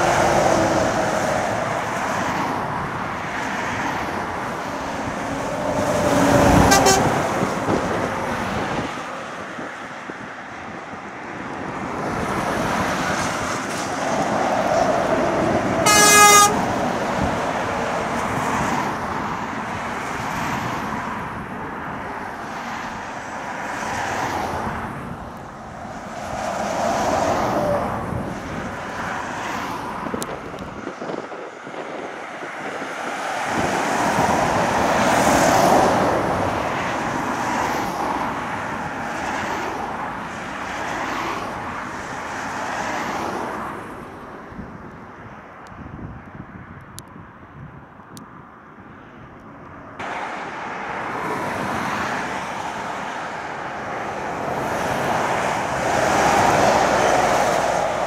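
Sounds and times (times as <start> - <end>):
traffic passing on main road: 0.0 - 58.0
short horn toot: 6.6 - 7.2, 15.9 - 16.6.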